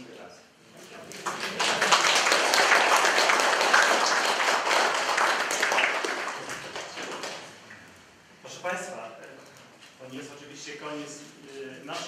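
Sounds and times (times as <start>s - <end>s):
small audience applauding: 1.0s - 7.7s.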